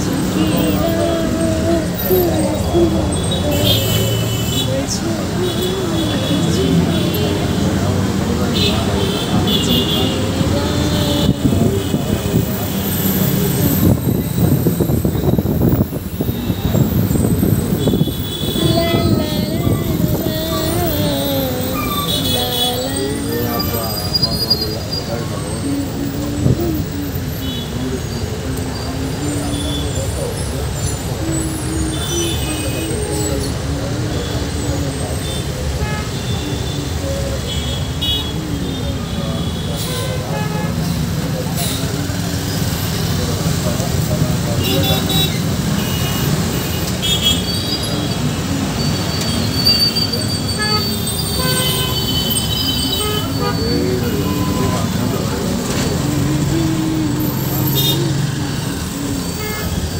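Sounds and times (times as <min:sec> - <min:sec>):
dense road traffic rumble: 0:00.0 - 0:59.9
vehicle horns tooting: 0:08.4 - 0:14.0, 0:14.6 - 0:28.1, 0:44.5 - 0:59.9
engines idling: 0:50.2 - 0:59.9.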